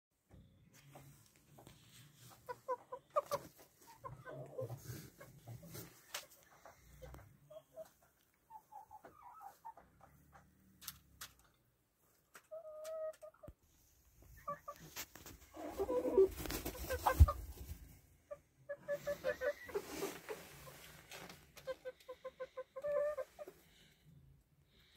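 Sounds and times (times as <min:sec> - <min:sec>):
chickens clucking: 0:00.8 - 0:13.6, 0:14.2 - 0:23.8
rustling: 0:14.4 - 0:18.1, 0:18.9 - 0:21.8.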